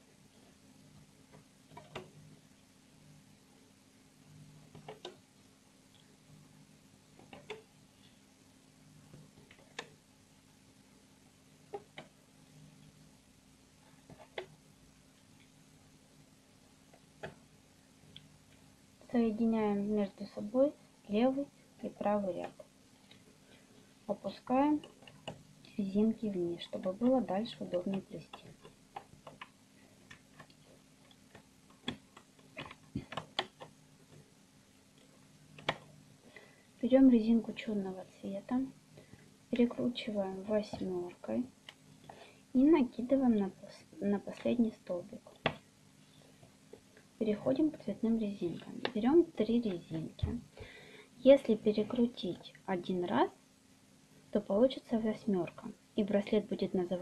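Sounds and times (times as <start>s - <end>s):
faint steady hum: 0.0s - 57.0s
rubber bands ticking on pegs: 4.6s - 5.3s, 7.1s - 8.2s, 11.6s - 12.2s, 16.8s - 17.5s, 26.8s - 34.3s, 34.9s - 36.0s.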